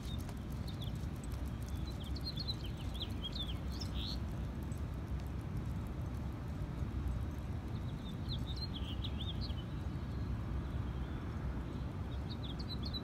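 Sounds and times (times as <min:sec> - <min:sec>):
small bird chirping: 0:00.0 - 0:04.3, 0:07.7 - 0:11.2
steady low rumble: 0:00.0 - 0:13.0.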